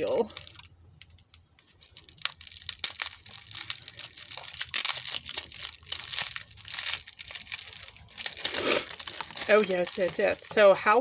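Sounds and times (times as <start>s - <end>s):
bubble wrap and paper crinkling: 0.0s - 11.0s.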